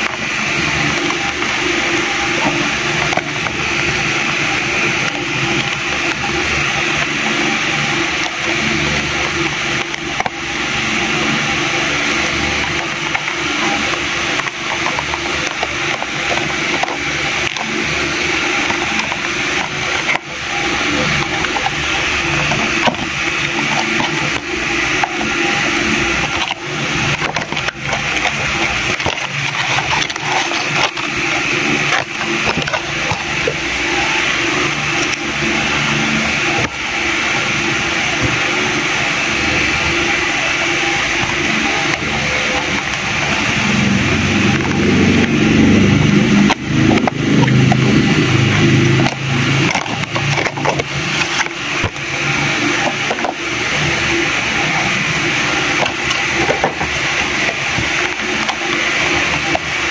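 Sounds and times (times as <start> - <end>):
cardboard box rustling and clicks: 12.6 - 35.6, 45.6 - 52.0, 52.7 - 53.5, 55.6 - 59.9.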